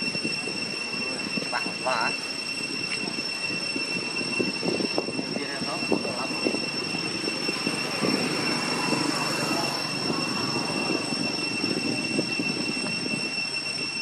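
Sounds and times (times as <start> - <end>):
constant high-pitched whine: 0.0 - 14.0.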